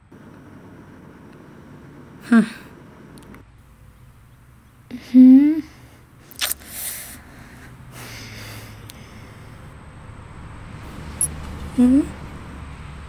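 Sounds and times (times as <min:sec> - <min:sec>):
woman's wordless vocal sound: 0:02.2 - 0:02.8, 0:04.9 - 0:05.9, 0:11.8 - 0:12.2
short breathy hisses: 0:04.9 - 0:09.6.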